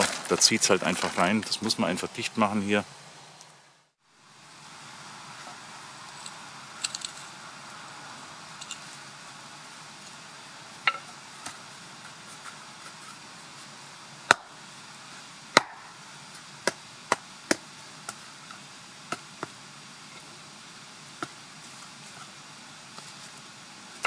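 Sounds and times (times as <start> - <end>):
hatchet chopping into soil: 14.3 - 14.5, 15.5 - 15.8, 16.6 - 18.2.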